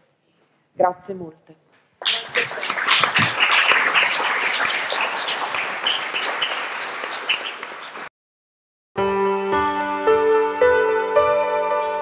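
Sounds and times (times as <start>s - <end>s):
audience applauding: 2.0s - 8.1s.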